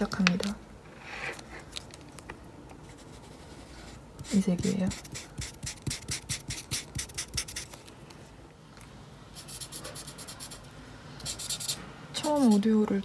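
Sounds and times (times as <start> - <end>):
marker scratching on paper: 2.8 - 7.8, 9.4 - 12.7.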